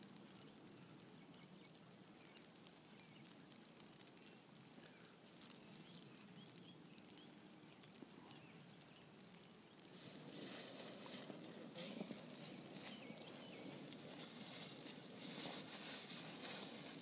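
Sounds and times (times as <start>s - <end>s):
faint bird chirps: 4.1s - 9.9s, 11.4s - 14.7s.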